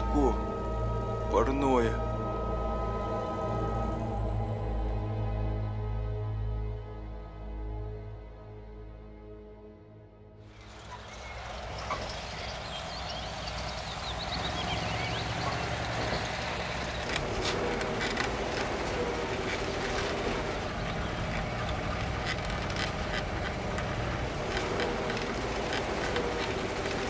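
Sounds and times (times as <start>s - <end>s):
bus engine drone: 0.0s - 9.2s, 10.4s - 27.0s
bus body rattling and knocking: 10.6s - 27.0s.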